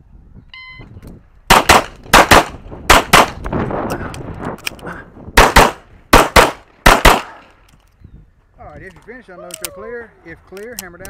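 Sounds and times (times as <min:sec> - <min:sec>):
pistol shots: 0:01.5 - 0:03.4, 0:05.4 - 0:07.4.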